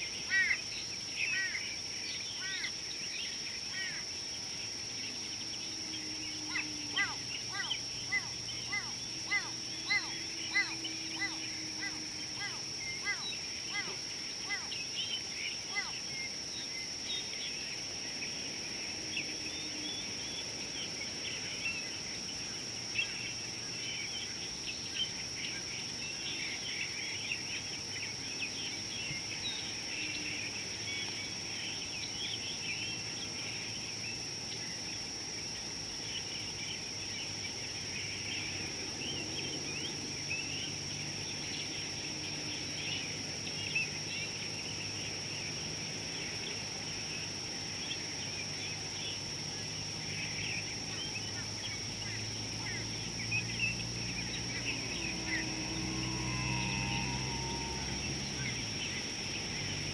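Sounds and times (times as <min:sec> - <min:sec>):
small birds chirping: 0:00.0 - 0:17.9
steady high-pitched whine: 0:00.0 - 0:59.9.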